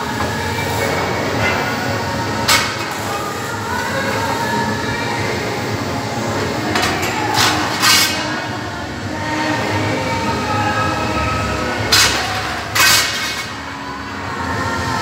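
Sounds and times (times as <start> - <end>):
workshop machinery rumble: 0.0 - 15.0
metal clanking and scraping: 6.7 - 8.4, 11.9 - 13.6.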